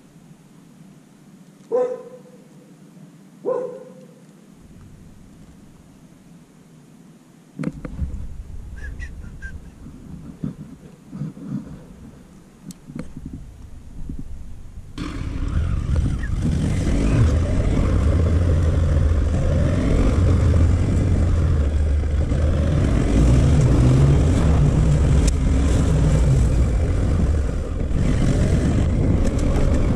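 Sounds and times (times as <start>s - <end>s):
wind and road noise: 3.2s - 29.9s
low rumble: 7.7s - 29.9s
motorcycle engine running: 14.9s - 29.9s.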